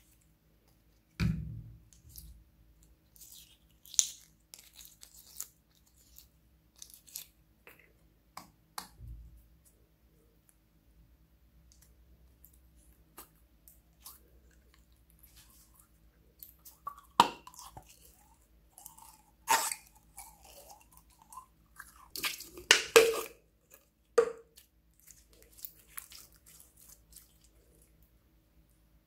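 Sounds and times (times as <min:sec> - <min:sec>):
slime squelching: 0:11.7 - 0:28.1.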